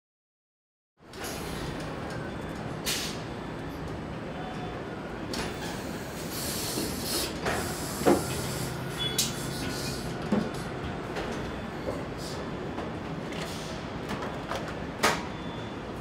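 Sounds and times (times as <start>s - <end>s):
conveyor machinery humming: 1.1s - 16.0s.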